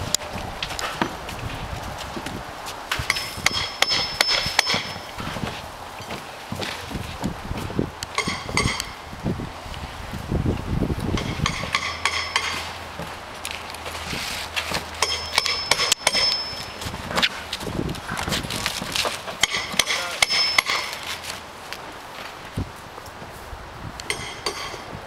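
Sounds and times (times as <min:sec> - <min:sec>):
hammers striking nails: 0:02.9 - 0:05.3, 0:08.1 - 0:09.0, 0:11.2 - 0:13.1, 0:14.6 - 0:17.3, 0:18.8 - 0:21.2, 0:24.1 - 0:24.9.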